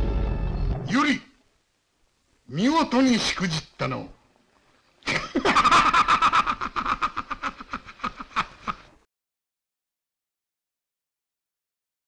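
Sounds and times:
man laughing loudly: 5.1 - 9.0.

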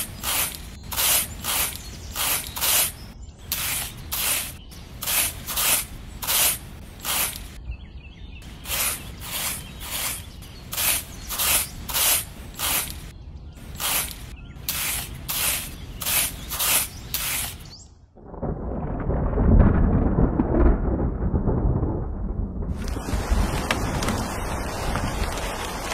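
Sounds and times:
metal hoe scraping sand: 0.0 - 7.6, 8.5 - 17.8
low rumble of thunder: 18.1 - 25.9.

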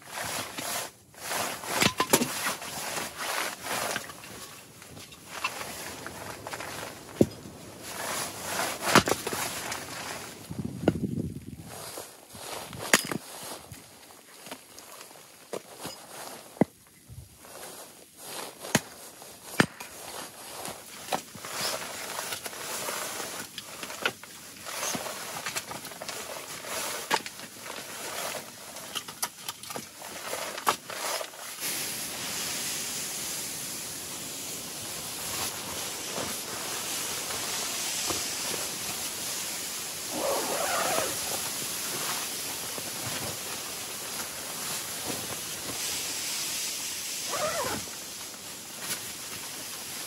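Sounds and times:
rustle: 0.0 - 50.0
steady hiss: 31.4 - 50.0.

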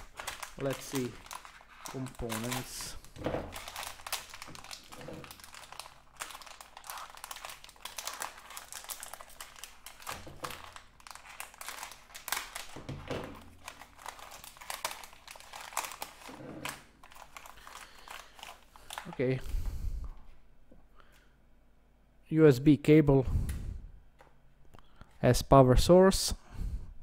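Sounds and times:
plastic bag crinkling: 0.0 - 19.6.

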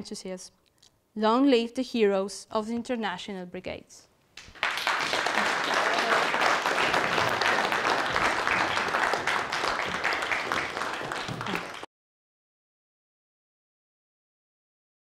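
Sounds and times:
audience applauding: 4.4 - 11.9.

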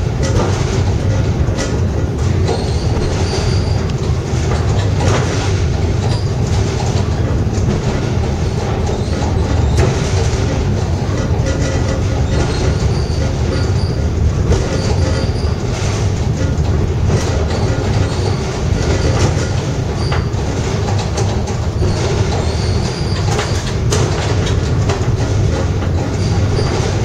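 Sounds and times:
funicular wheels rumbling on track: 0.0 - 27.0
high wheel squeals: 2.4 - 4.0.

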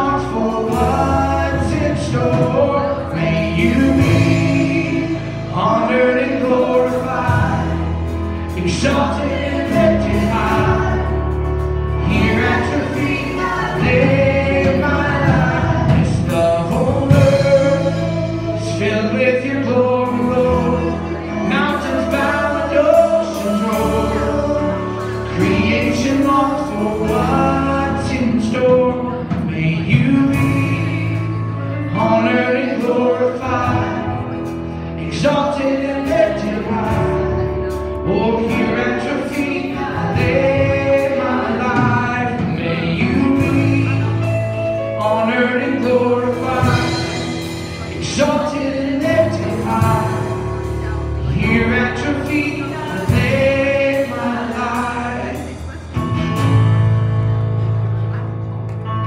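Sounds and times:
people singing: 0.0 - 56.0
acoustic guitar: 0.0 - 59.0
drums: 0.0 - 59.0
keyboard: 0.0 - 59.0.

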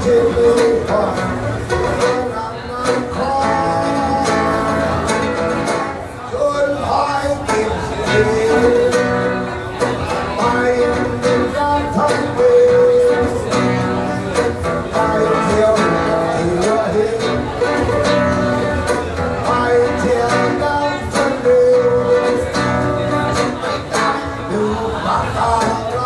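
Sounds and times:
acoustic guitar strumming: 0.0 - 26.0
man singing: 0.0 - 26.0.

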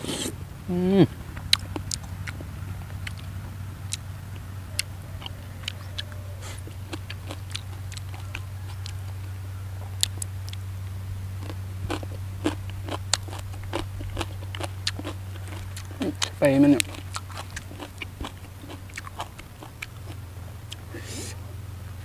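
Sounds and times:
low hum: 0.0 - 22.0
person chewing crunchy food: 1.4 - 3.3, 4.7 - 9.2, 9.8 - 10.6, 11.3 - 21.4
mouth clicks: 10.0 - 10.6.

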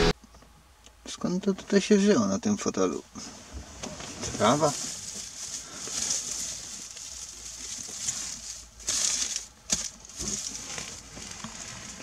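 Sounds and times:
dry grass rustling and crackling: 3.2 - 12.0.

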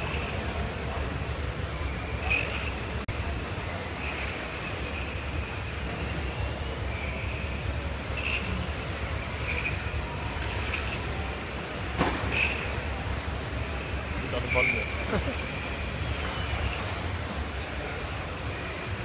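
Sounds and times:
high whine of toy car motors: 0.0 - 19.0
sharp knock: 12.0 - 12.4.

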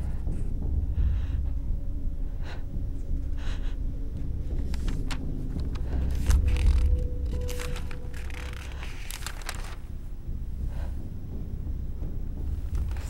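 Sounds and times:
low rumble: 0.0 - 13.0
paper rustling and clicks: 4.5 - 9.8, 12.7 - 13.0.

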